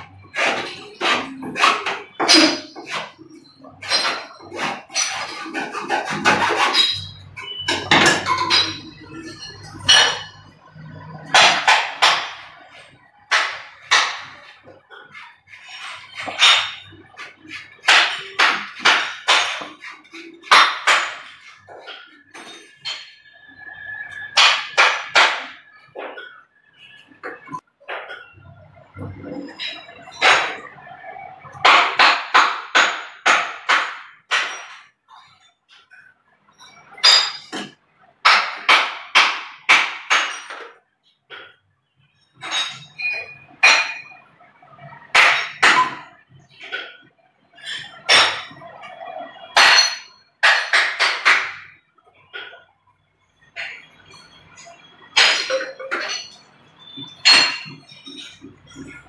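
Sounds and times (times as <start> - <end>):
hacksaw rasping through plastic pipe: 4.5 - 6.9.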